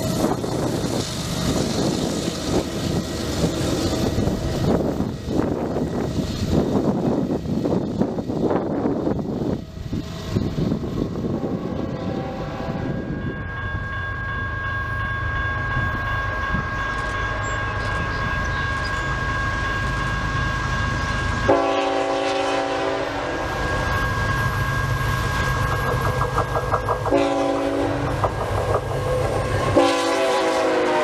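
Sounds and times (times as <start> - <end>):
wind on microphone: 0.0 - 13.5
diesel locomotive engine rumble: 0.0 - 31.0
train air horn: 11.3 - 13.2, 21.5 - 24.4, 27.1 - 28.3, 29.6 - 31.0
multi-note horn chord: 21.5 - 23.4, 29.8 - 31.0.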